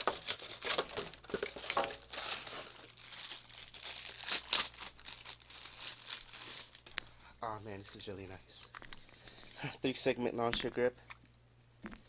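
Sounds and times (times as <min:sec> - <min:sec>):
plastic packaging crinkling: 0:00.0 - 0:09.5.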